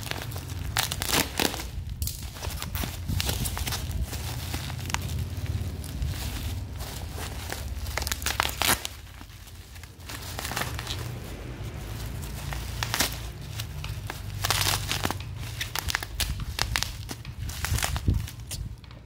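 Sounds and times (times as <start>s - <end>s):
bubble wrap crinkling: 0.0s - 19.0s.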